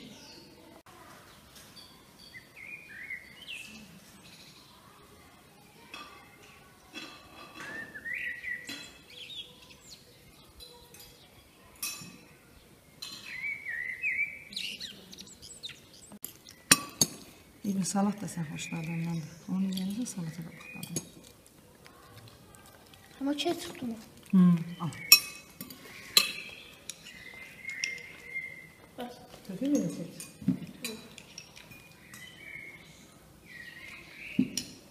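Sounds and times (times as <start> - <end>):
birds chirping: 0.0 - 34.9
dishes and cutlery clinking: 5.9 - 9.1, 10.6 - 12.3, 13.0 - 13.4, 16.2 - 17.3, 18.8 - 21.5, 24.9 - 32.5, 34.4 - 34.9.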